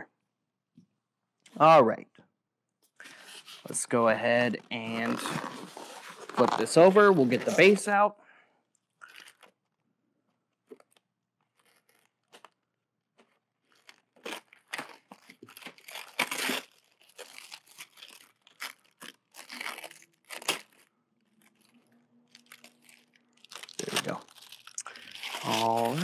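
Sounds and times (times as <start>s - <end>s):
tape and tissue tearing: 3.2s - 7.8s, 13.8s - 26.0s
blade slitting packing tape: 14.2s - 18.7s.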